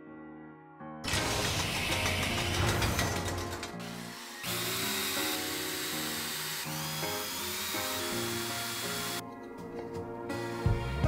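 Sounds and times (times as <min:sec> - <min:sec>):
background music: 0:00.0 - 0:11.0
electric screwdriver running: 0:01.1 - 0:09.2.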